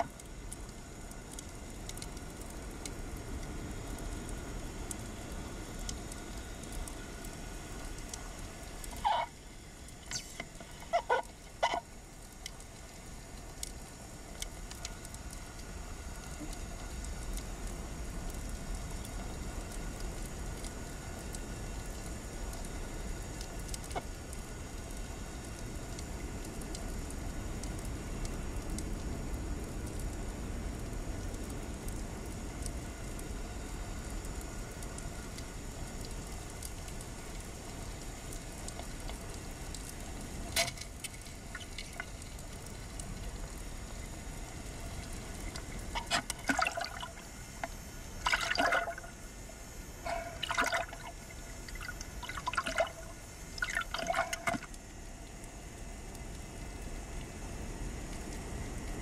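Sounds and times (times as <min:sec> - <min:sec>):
faint ticks: 0:00.0 - 0:48.0, 0:48.9 - 0:59.0
short pitched calls: 0:09.0 - 0:09.3, 0:10.1 - 0:11.8
underwater low rush: 0:41.4 - 0:54.8.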